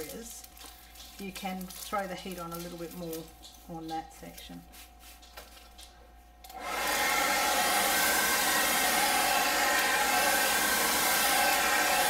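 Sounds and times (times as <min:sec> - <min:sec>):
hair dryer running: 0:06.5 - 0:12.0.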